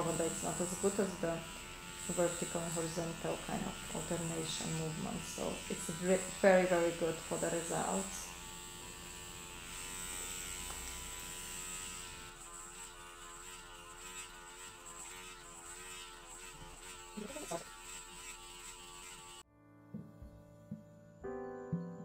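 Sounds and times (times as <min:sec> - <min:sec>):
electric motor humming: 0:00.0 - 0:19.4.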